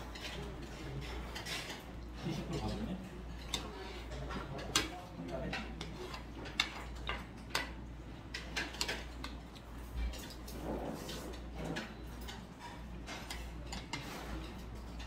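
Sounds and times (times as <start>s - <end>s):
chopsticks tapping on tableware: 4.2s - 10.4s.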